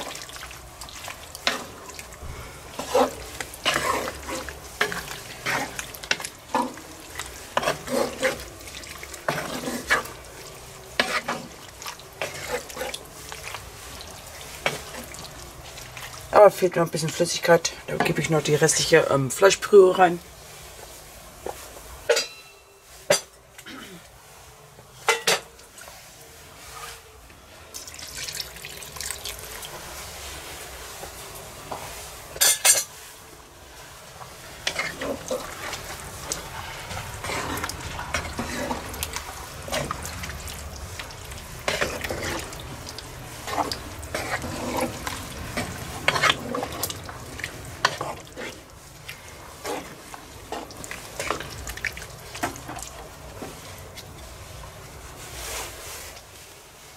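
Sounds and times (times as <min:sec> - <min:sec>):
broth pouring into a pot: 0:00.0 - 0:16.4, 0:27.7 - 0:30.8, 0:33.9 - 0:54.3
stew bubbling: 0:00.0 - 0:17.4, 0:34.5 - 0:54.3
wooden spatula stirring stew: 0:00.0 - 0:22.2, 0:28.0 - 0:56.7.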